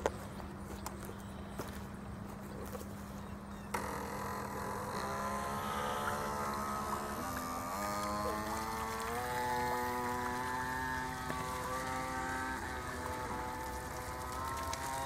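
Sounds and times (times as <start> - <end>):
model speedboat motor whining: 3.4 - 15.0.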